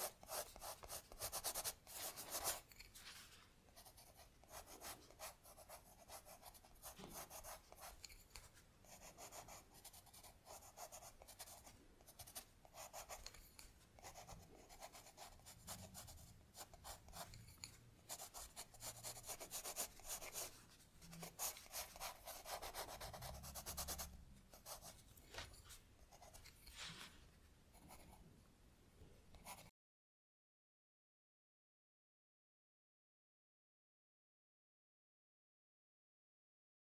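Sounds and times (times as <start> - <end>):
stylus scratching on tablet screen: 0.0 - 3.0, 3.8 - 27.1.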